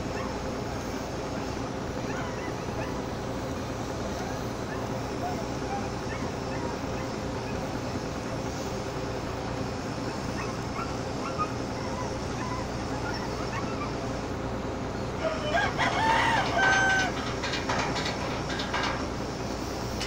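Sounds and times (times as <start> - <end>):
ship engine drone: 0.0 - 20.0
distant crowing: 10.2 - 20.0
rooster crowing: 15.2 - 18.8.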